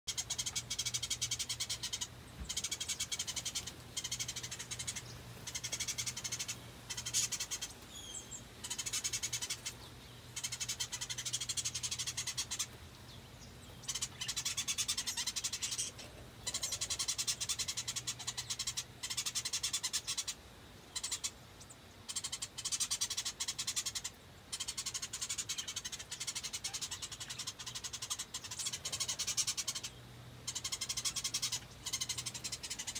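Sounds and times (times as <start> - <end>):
low steady hum: 0.1 - 19.5.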